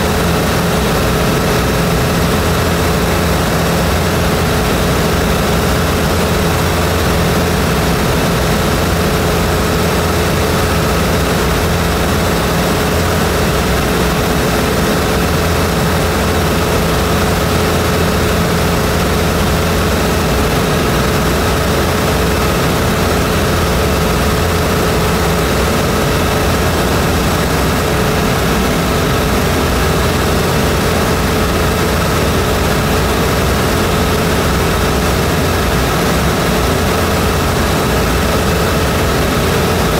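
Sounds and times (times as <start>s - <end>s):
aircraft engine drone: 0.0s - 39.9s.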